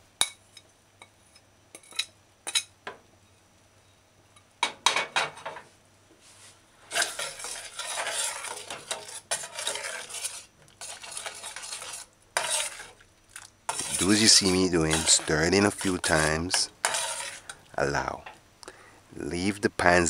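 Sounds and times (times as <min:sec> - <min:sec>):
metal spoon on ceramic plate: 0:06.9 - 0:12.9, 0:13.7 - 0:17.5
spoon stirring in metal saucepan: 0:06.9 - 0:17.7.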